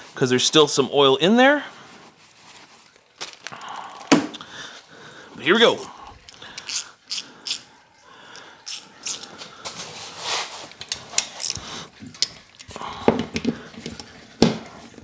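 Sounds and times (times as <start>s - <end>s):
hand tool clicking and scraping metal: 6.2s - 7.7s, 8.7s - 9.4s, 10.7s - 12.7s.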